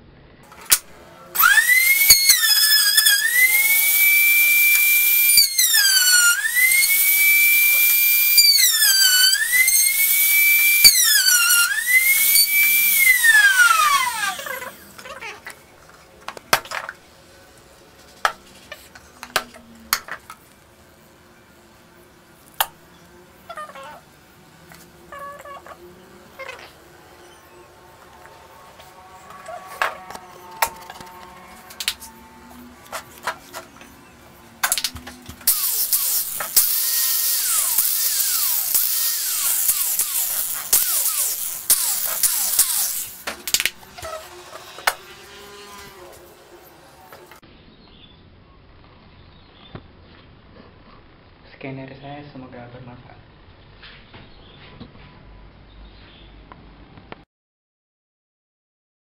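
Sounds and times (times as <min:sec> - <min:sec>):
router motor whining: 0:00.5 - 0:15.5, 0:24.6 - 0:47.4.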